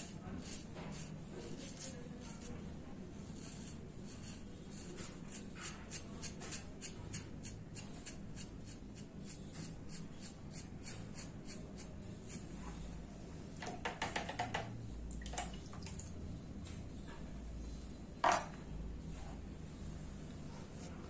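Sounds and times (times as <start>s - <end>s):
razor scraping stubble: 0.0s - 12.9s.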